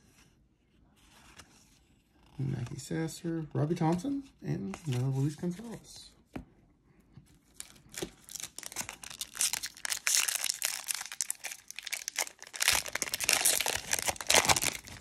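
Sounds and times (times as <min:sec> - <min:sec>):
foil wrapper crinkling and tearing: 0:07.6 - 0:15.0.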